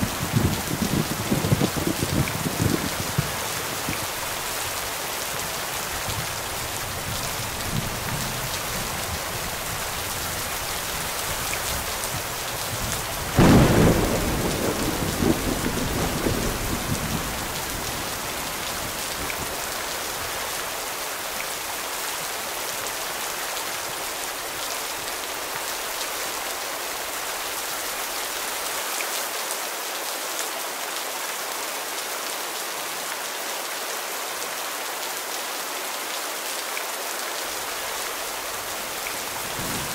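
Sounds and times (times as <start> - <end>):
steady rain falling: 0.0 - 39.9
thunder clap rumbling: 13.3 - 19.6, 39.5 - 39.9.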